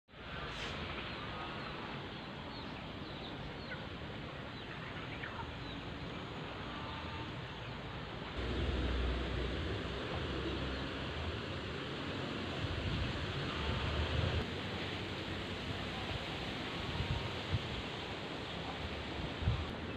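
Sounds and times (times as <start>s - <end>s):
small birds chirping: 1.0s - 8.0s
wind rumble on microphone: 12.3s - 19.9s.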